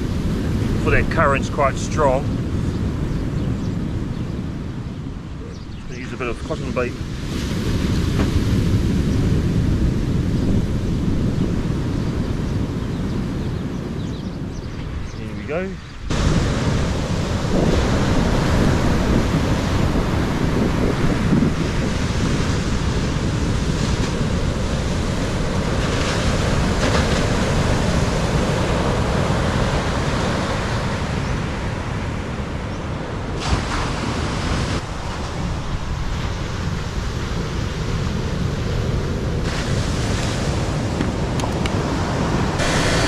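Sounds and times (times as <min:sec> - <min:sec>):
surf breaking on beach: 0:00.0 - 0:02.7, 0:05.9 - 0:13.4, 0:15.3 - 0:43.0
wind buffeting microphone: 0:00.0 - 0:43.0.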